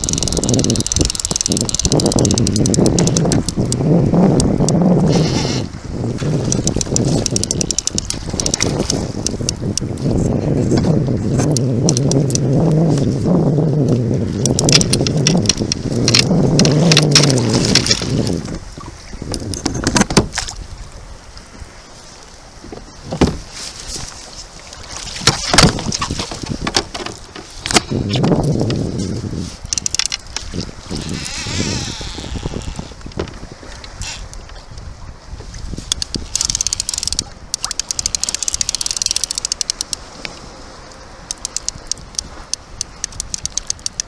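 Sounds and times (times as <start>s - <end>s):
fishing reel clicking rapidly: 0.0s - 3.8s, 6.4s - 9.5s, 35.9s - 40.0s, 41.3s - 44.0s
water sloshing around kayak: 0.0s - 44.0s
wind: 0.0s - 44.0s
sudden splashes and knocks: 22.7s - 23.6s, 25.0s - 28.4s.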